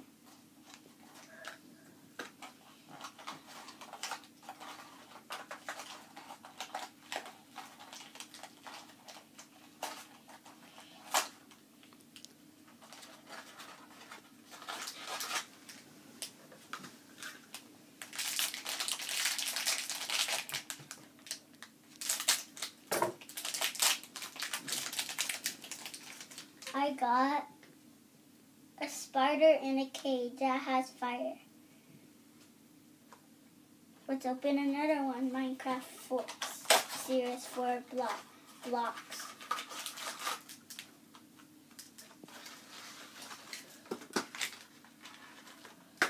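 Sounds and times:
packaging tearing and crinkling: 0:02.4 - 0:11.5, 0:12.8 - 0:15.8, 0:17.2 - 0:26.7, 0:36.3 - 0:37.6, 0:38.8 - 0:40.9, 0:41.8 - 0:45.7.

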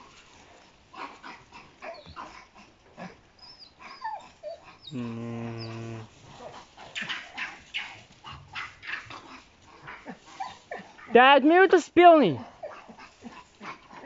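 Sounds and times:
dogs barking: 0:06.3 - 0:11.2, 0:12.4 - 0:14.0.

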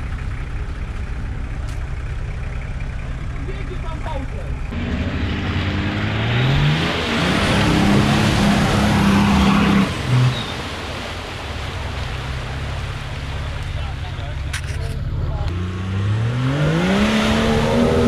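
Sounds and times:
spinning tyres and flung mud: 0:00.0 - 0:18.0
engine revving hard: 0:04.7 - 0:10.4, 0:15.5 - 0:18.0.

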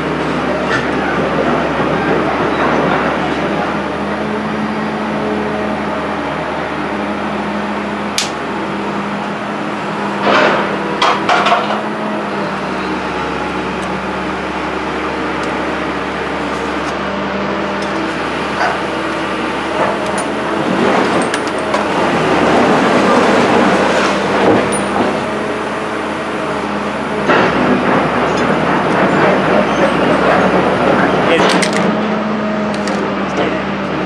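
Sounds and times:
hand tools clanking on steel: 0:19.8 - 0:21.9, 0:24.4 - 0:25.2.

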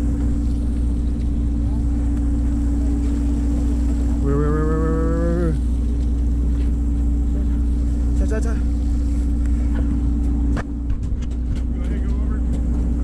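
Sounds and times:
boat engine drone: 0:00.0 - 0:13.0
man's low moo-like call: 0:04.2 - 0:05.6.

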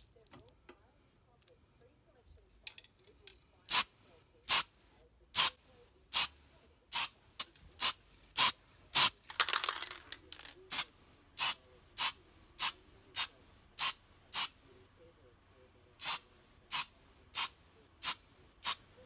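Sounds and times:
spray paint hissing: 0:03.7 - 0:03.9, 0:05.4 - 0:07.2, 0:07.8 - 0:09.2, 0:10.7 - 0:14.6, 0:16.0 - 0:18.8.

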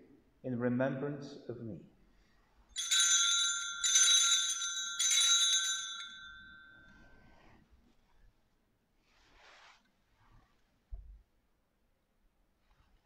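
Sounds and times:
altar bell ringing: 0:02.7 - 0:07.3.

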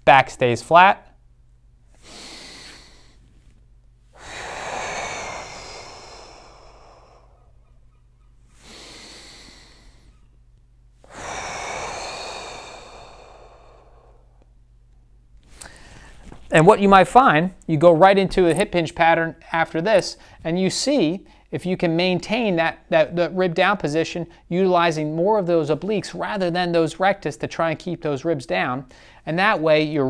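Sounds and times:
man breathing deeply: 0:01.9 - 0:10.4, 0:11.0 - 0:14.6, 0:15.4 - 0:16.3, 0:20.2 - 0:20.4, 0:28.9 - 0:29.2.

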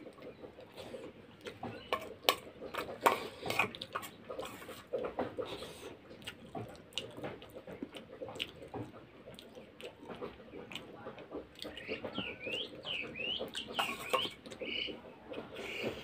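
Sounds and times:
close-up chewing: 0:00.0 - 0:16.0
spoon scraping steel bowl: 0:01.9 - 0:04.7.

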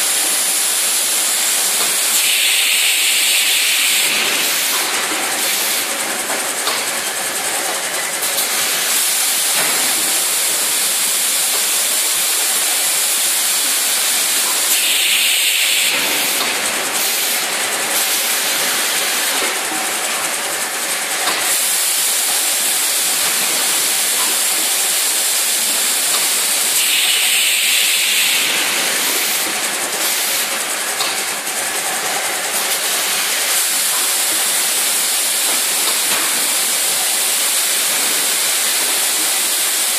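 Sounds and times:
steady machinery hiss: 0:00.0 - 0:39.9
loud hissing bursts: 0:01.6 - 0:06.0, 0:11.8 - 0:19.4, 0:21.4 - 0:30.5.

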